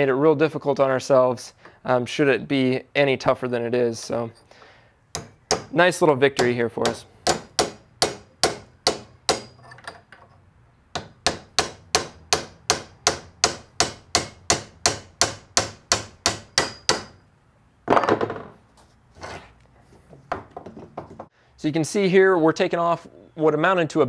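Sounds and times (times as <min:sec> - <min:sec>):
hammer tapping steel chisel: 0:05.1 - 0:05.8, 0:06.4 - 0:10.4.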